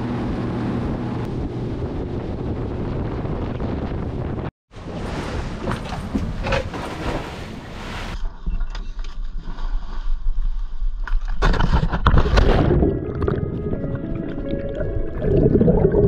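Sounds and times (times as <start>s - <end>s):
wind buffeting microphone: 0.0s - 6.4s
boat rushing rumbling noise: 0.0s - 8.4s.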